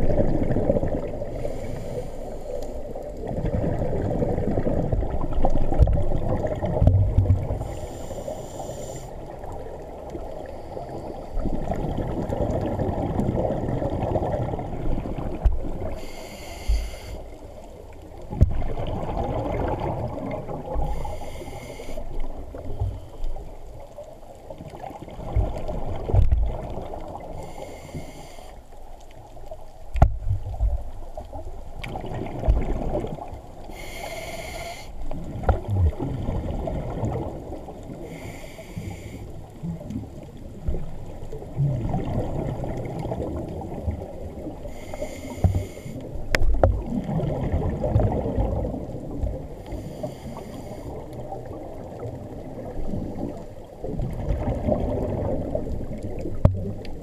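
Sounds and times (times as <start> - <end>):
low rumbling water noise: 0.0 - 57.0
scuba regulator breath hiss: 1.3 - 2.9, 7.6 - 9.2, 15.9 - 17.4, 20.8 - 23.3, 27.4 - 28.6, 33.7 - 35.0, 38.0 - 39.4, 44.6 - 46.2, 49.7 - 51.0.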